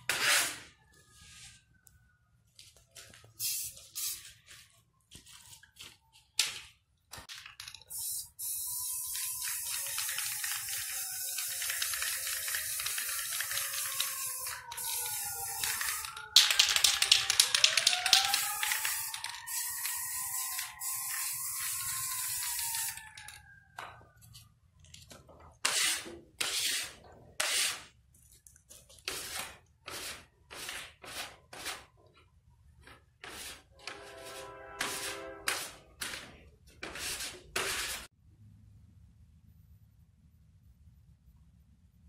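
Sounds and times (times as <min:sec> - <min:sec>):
spray paint can hissing: 0:03.4 - 0:04.4, 0:07.9 - 0:23.0.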